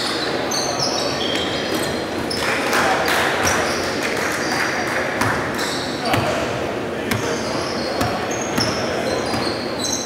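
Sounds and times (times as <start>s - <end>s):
sneakers squeaking: 0.0s - 2.6s, 3.3s - 10.0s
players' voices: 0.1s - 10.0s
basketball bouncing: 7.1s - 7.4s, 8.0s - 9.5s.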